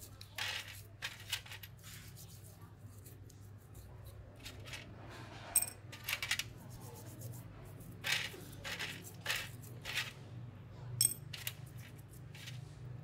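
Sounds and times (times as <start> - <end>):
toothbrush scrubbing metal parts: 0.0 - 4.9, 5.6 - 10.2, 11.3 - 12.9
metal part clinking on tray: 11.0 - 11.6.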